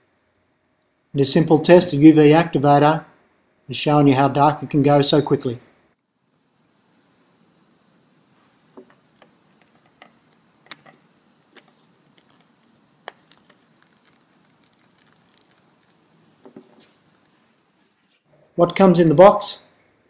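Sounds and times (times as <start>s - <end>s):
small clicks and taps: 8.8s - 15.5s.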